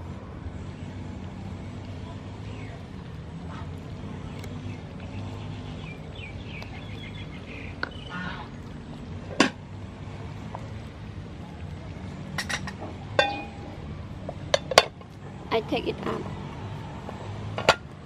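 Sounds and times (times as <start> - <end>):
porridge cooking: 0.0 - 15.5
steady low rumble: 0.0 - 18.0
birds chirping: 0.7 - 9.3.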